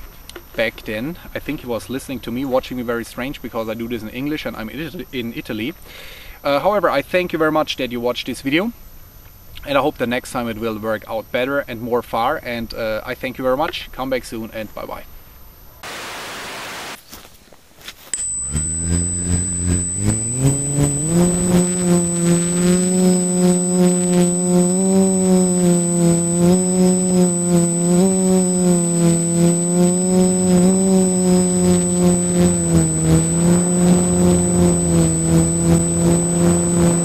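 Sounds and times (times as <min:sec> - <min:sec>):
static hiss: 0:15.8 - 0:17.0, 0:18.2 - 0:37.0
quadcopter motors droning: 0:18.2 - 0:37.0.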